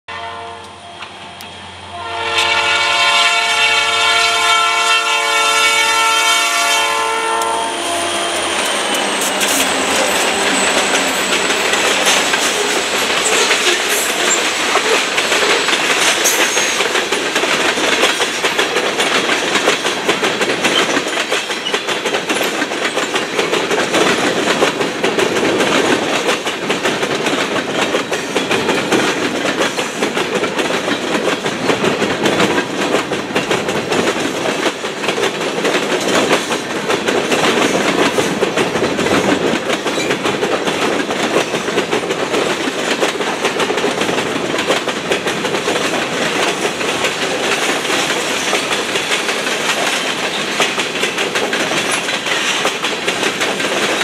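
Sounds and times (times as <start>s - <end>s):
locomotive air horn: 0.1s - 1.2s, 1.8s - 11.3s
freight train rumbling past: 0.1s - 54.0s
wheels clicking over rails: 7.3s - 54.0s.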